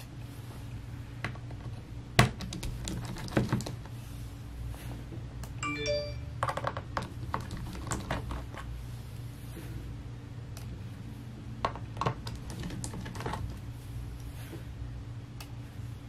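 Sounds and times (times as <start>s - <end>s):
bright metallic ring: 5.6s - 6.4s.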